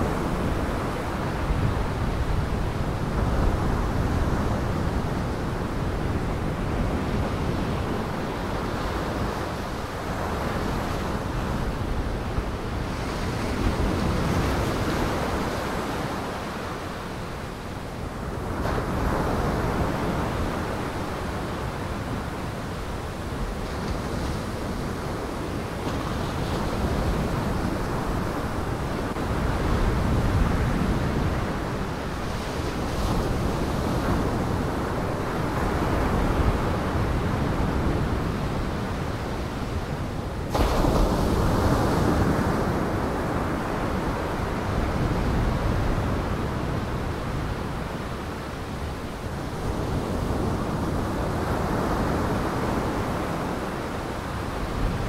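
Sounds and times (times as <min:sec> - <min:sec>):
wind: 0:00.0 - 0:55.0
surf breaking on shore: 0:40.4 - 0:47.6.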